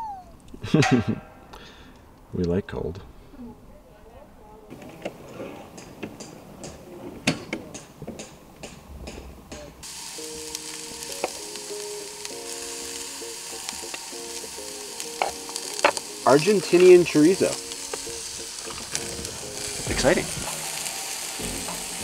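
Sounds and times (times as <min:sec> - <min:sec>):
meat sizzling in a pan: 0:09.8 - 0:22.0.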